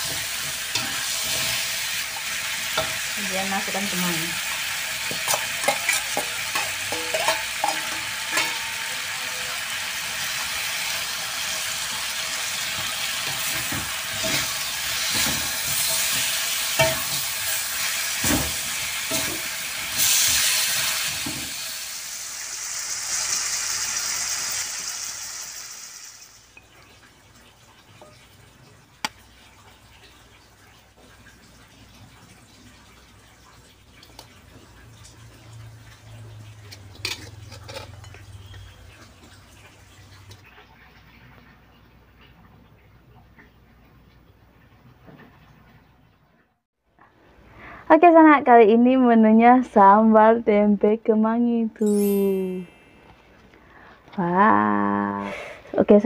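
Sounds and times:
oil sizzling in a wok: 0.0 - 40.4
metal spatula scraping a pan: 5.1 - 9.1, 12.7 - 21.4, 36.7 - 38.8.

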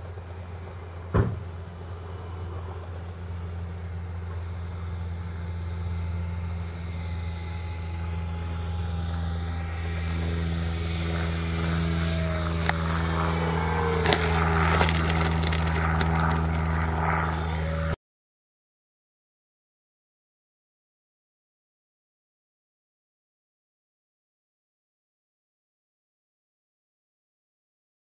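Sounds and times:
model plane motor whine: 0.0 - 18.0
steady low hum: 0.0 - 18.0.

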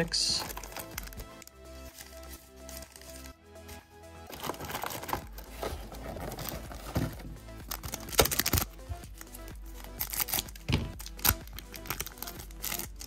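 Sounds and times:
background music: 0.0 - 13.0
foil pack crinkling and tearing: 0.4 - 3.3, 4.3 - 13.0.

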